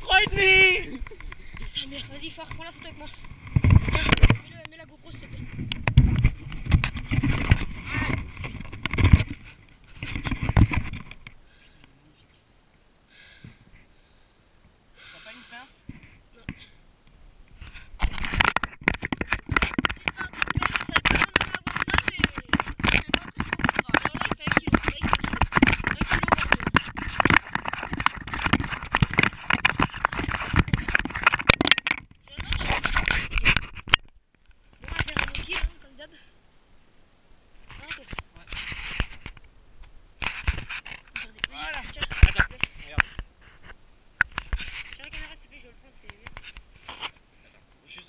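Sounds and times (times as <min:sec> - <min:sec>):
camera being handled: 0:17.6 - 0:34.2, 0:40.2 - 0:45.2, 0:46.2 - 0:47.2.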